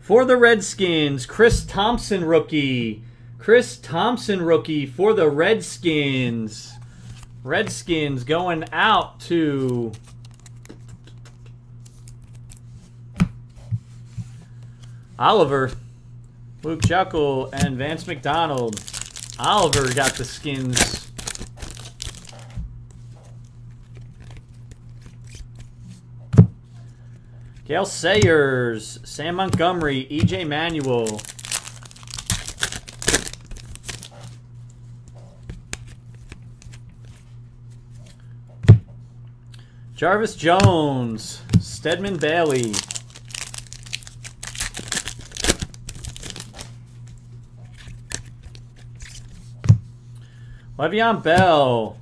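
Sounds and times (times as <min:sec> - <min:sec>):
steady low hum: 0:00.0 - 0:52.0
plastic wrapper crinkling: 0:17.5 - 0:22.6, 0:30.2 - 0:34.4, 0:41.8 - 0:46.7
cards clicking together: 0:17.6 - 0:22.4.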